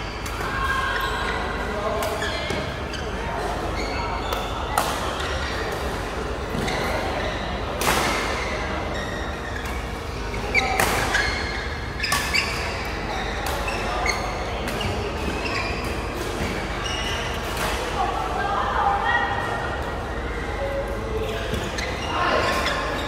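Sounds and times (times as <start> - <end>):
shoes squeaking on floor: 2.1 - 5.7, 8.4 - 17.4, 21.2 - 23.0.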